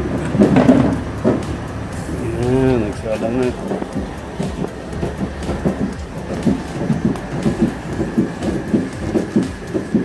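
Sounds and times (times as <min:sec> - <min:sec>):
meat crackling over embers: 0:00.0 - 0:10.0
rhythmic whoosh of air: 0:00.0 - 0:10.0.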